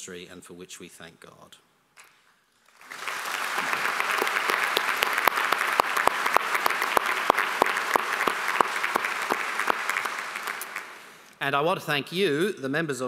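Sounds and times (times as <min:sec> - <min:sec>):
audience applauding: 0:02.6 - 0:11.3
loud close hand claps: 0:02.8 - 0:11.1.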